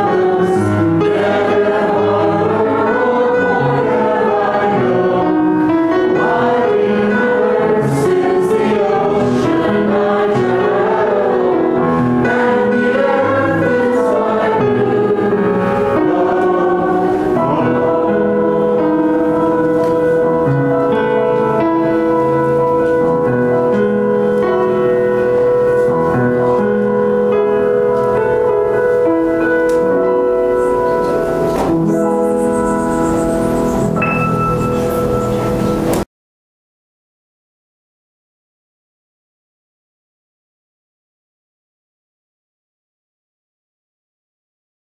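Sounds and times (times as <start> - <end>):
choir singing a hymn: 0.0 - 22.4.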